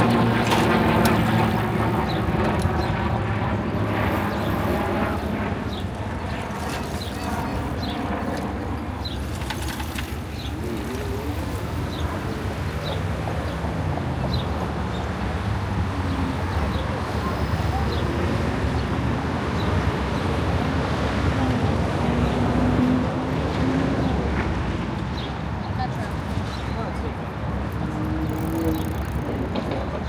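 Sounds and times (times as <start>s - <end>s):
vehicle engine humming: 0.0s - 18.9s, 27.1s - 30.0s.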